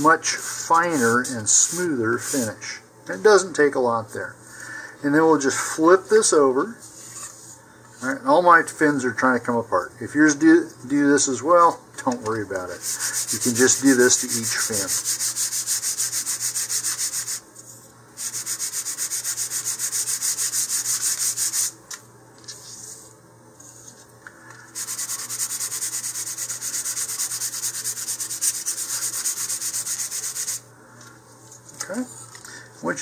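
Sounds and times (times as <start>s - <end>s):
sandpaper rubbing on wood: 0.3s - 2.5s, 12.7s - 17.4s, 18.2s - 21.8s, 24.8s - 30.6s.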